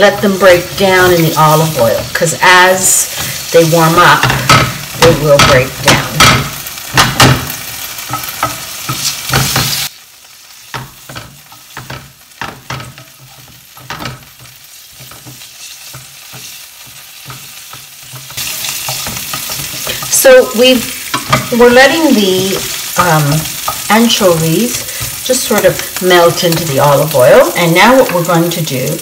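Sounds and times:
fish sizzling in oil: 0:00.0 - 0:29.0
spatula scraping and tapping pan: 0:03.1 - 0:09.9, 0:10.7 - 0:27.1.

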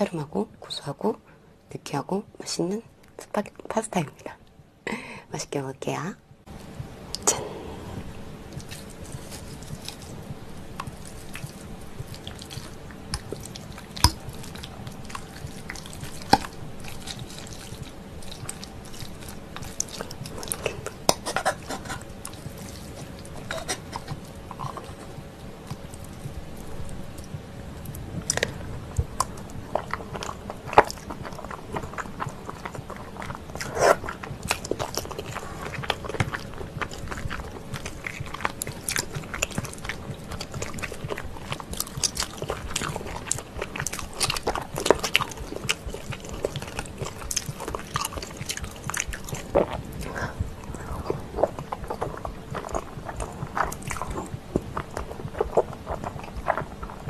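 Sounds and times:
wet chewing and lip smacks: 0:08.0 - 0:57.0
noodles slurped: 0:29.2 - 0:57.0.

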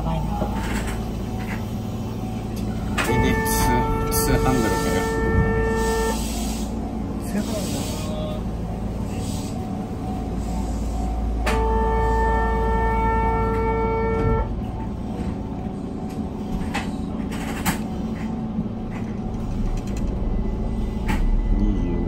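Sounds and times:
train running rumble: 0:00.0 - 0:22.0
train horn: 0:03.0 - 0:06.7, 0:11.4 - 0:14.8.

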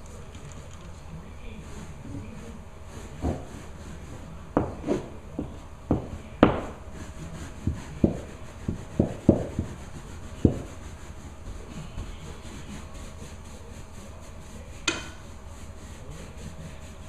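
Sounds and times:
rubbing on stair: 0:00.0 - 0:17.0
knocks against wooden stair: 0:07.7 - 0:09.8, 0:14.8 - 0:15.2.

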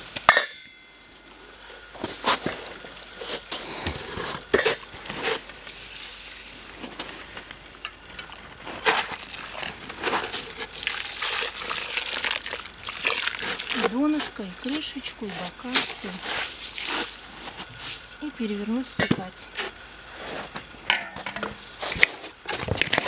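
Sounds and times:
water pouring and splashing on wood: 0:08.4 - 0:18.2.

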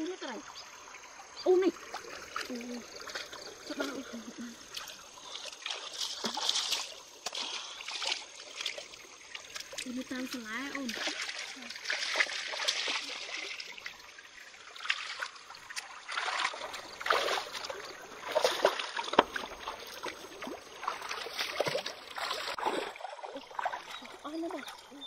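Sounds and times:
stream running over rocks: 0:00.0 - 0:25.0
hands splashing in water: 0:04.7 - 0:13.9, 0:14.8 - 0:24.2.

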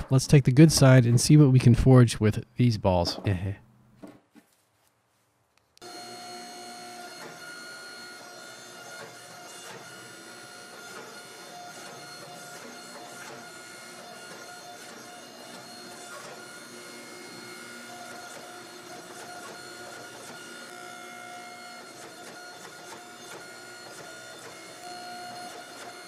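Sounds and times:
hydraulic pump whine: 0:05.8 - 0:26.0.

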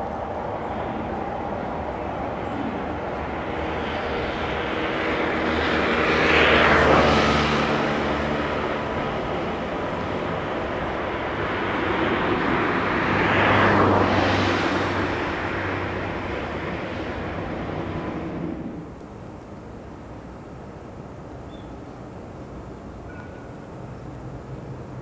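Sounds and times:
steady background hum: 0:00.0 - 0:13.2
vehicles passing close by: 0:00.0 - 0:25.0.

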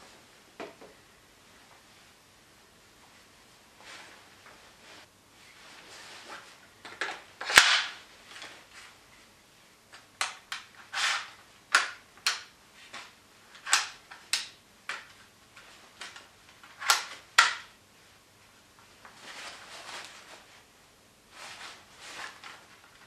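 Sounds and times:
soft rustling: 0:00.0 - 0:06.8, 0:18.0 - 0:23.0
gun stock clicks and sliding clacks: 0:09.9 - 0:15.1.

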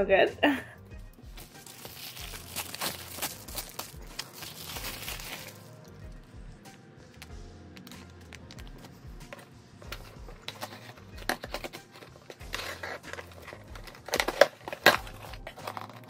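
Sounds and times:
plastic zip bag crinkling: 0:01.4 - 0:05.9, 0:10.5 - 0:16.0
scissors slicing packing tape: 0:01.6 - 0:05.7, 0:10.4 - 0:16.0.

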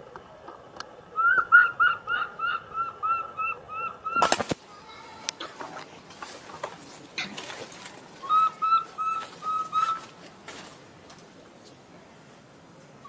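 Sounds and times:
baby macaque coo calls: 0:01.2 - 0:05.1, 0:08.2 - 0:10.1.

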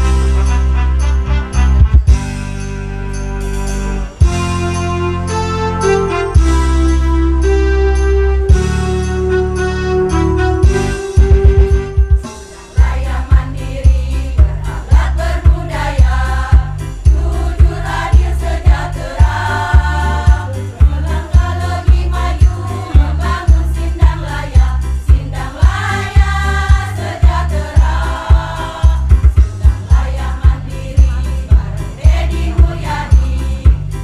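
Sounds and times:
heavy low beat: 0:01.6 - 0:02.6, 0:03.5 - 0:05.1, 0:10.6 - 0:34.0
women's choir singing: 0:12.3 - 0:33.9.

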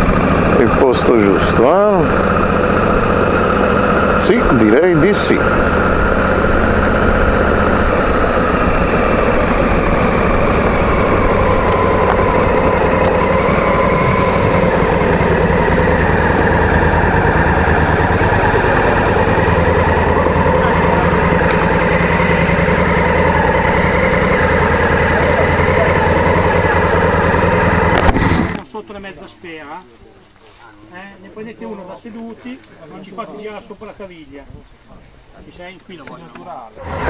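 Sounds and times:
motorcycle engine at low revs: 0:00.0 - 0:28.6.

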